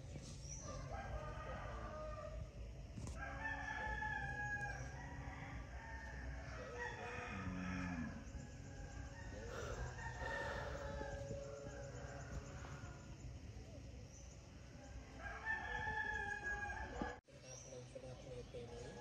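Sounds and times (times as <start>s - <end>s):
rooster crowing: 0.6s - 2.4s, 3.1s - 13.2s, 15.2s - 17.2s
steady low hum: 3.8s - 15.2s
chickens calling: 9.1s - 13.0s.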